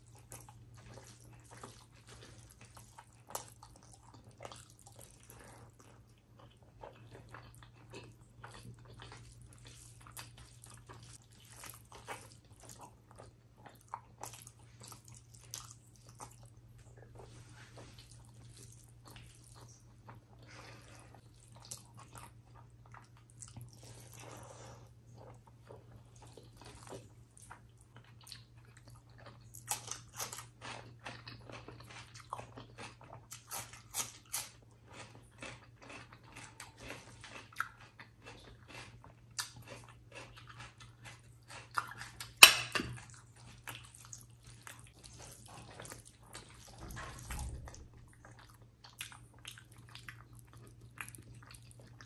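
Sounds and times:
faint low hum: 0:00.0 - 0:52.0
wet chewing and lip smacks: 0:25.1 - 0:52.0.

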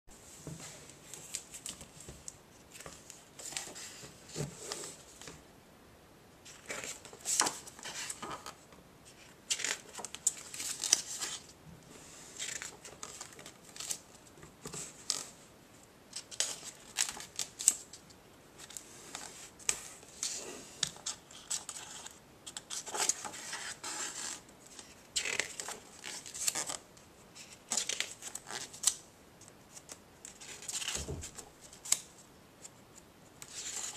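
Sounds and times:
card pages rustling and turning: 0:00.7 - 0:05.3, 0:06.5 - 0:11.5, 0:12.4 - 0:15.3, 0:18.6 - 0:26.8, 0:29.7 - 0:32.8.

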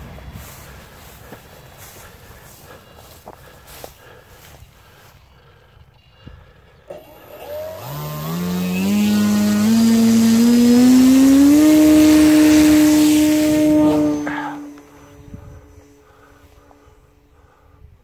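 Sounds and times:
electric propeller motor whine: 0:06.8 - 0:17.6.

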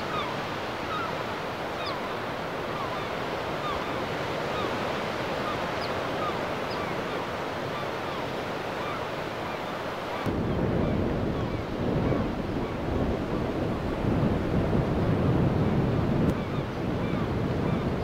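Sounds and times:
small waves washing onto beach: 0:00.0 - 0:18.0
wind buffeting microphone: 0:10.2 - 0:18.0.

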